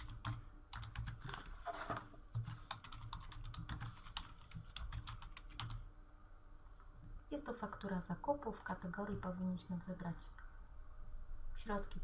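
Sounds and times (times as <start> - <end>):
typing on computer keyboard: 0.0 - 1.6, 2.3 - 5.8.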